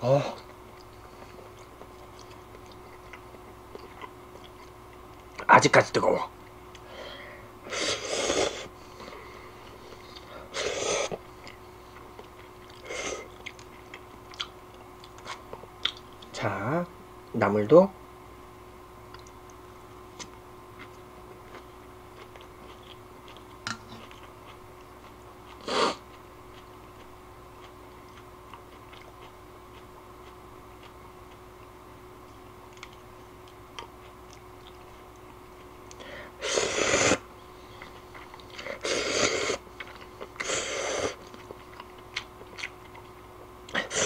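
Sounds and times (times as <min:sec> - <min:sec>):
chewing: 0:00.4 - 0:05.5, 0:11.0 - 0:16.4, 0:20.2 - 0:31.7, 0:32.7 - 0:36.1, 0:37.6 - 0:44.0
slurping noodles: 0:36.4 - 0:37.2, 0:38.6 - 0:39.6, 0:40.4 - 0:41.2.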